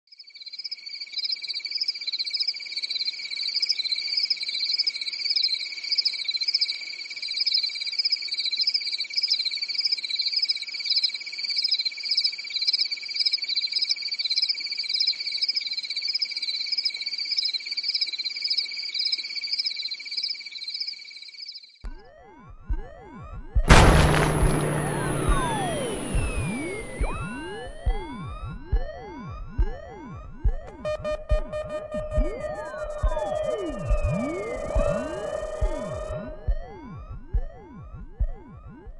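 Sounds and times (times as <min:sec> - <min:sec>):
swooping sound effect: 0:22.8 - 0:38.9.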